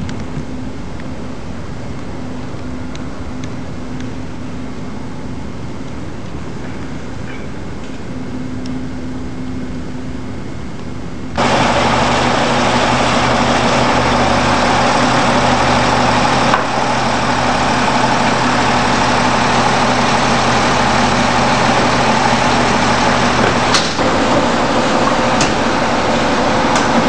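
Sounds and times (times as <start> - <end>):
heavy engine idling: 11.4 - 27.0.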